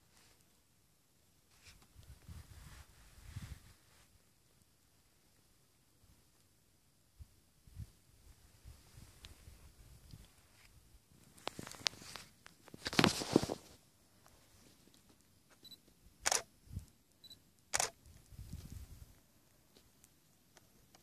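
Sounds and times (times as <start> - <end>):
cloth rubbing on microphone: 1.5 - 4.1, 11.5 - 13.8.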